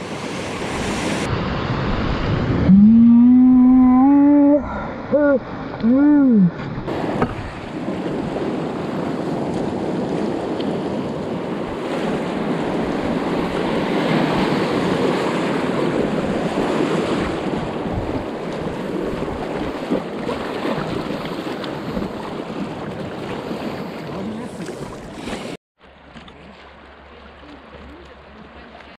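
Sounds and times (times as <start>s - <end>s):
wind buffeting microphone: 6.5s - 25.6s.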